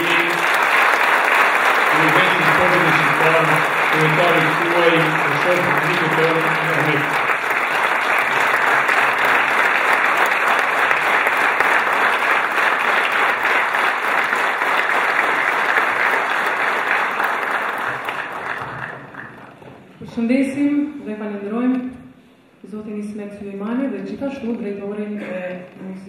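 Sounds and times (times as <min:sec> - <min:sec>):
audience applauding: 0:00.0 - 0:19.6.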